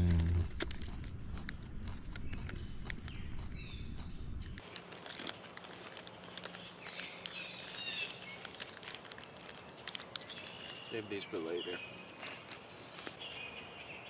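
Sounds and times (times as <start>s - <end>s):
small clicks and crackles: 0.0s - 3.6s, 4.4s - 11.2s, 12.1s - 13.2s
low rumble: 0.0s - 4.6s
birds chirping faintly: 2.1s - 4.7s, 5.3s - 14.0s.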